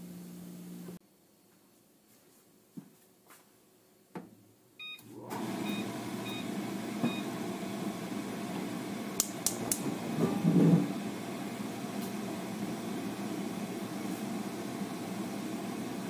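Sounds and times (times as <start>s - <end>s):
gas stove igniter clicks: 9.2s - 9.8s.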